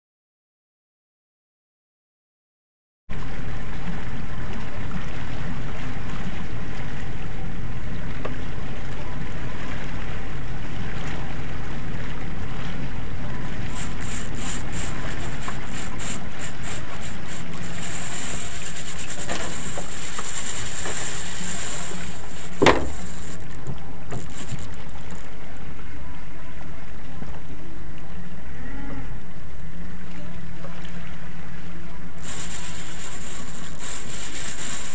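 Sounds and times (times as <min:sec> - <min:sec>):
outboard motor running: 0:03.4 - 0:25.6, 0:32.2 - 0:34.9
high-pitched rattling buzz: 0:13.7 - 0:25.4, 0:32.2 - 0:34.9.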